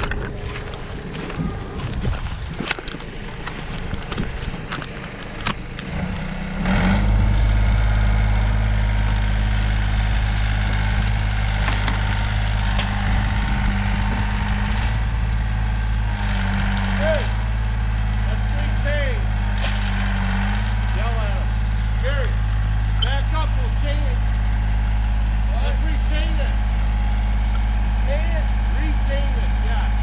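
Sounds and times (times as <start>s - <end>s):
footsteps crunching in snow: 0.0s - 5.1s
diesel engine revving: 0.0s - 30.0s.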